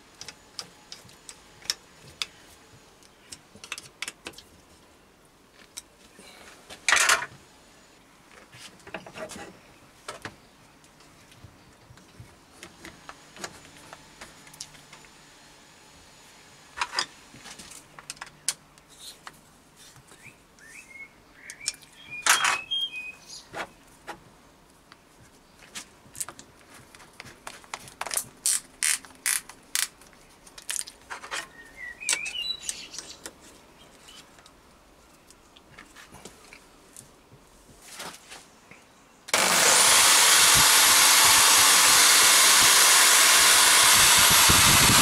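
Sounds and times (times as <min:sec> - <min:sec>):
birds chirping: 0:20.1 - 0:23.8, 0:31.5 - 0:34.4.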